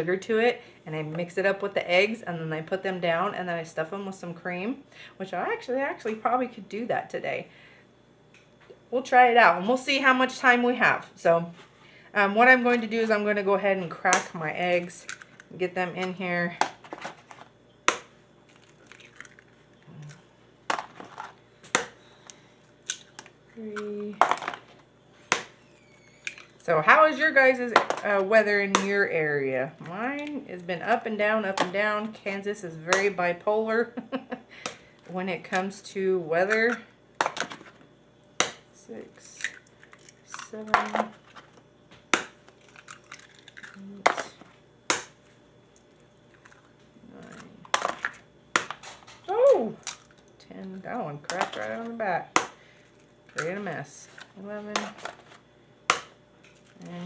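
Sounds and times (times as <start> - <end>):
eggshells cracking: 17.9 - 21.2, 39.4 - 41.0, 42.2 - 45.2, 46.3 - 48.8, 49.8 - 50.3
person humming: 49.3 - 49.8, 56.8 - 57.0.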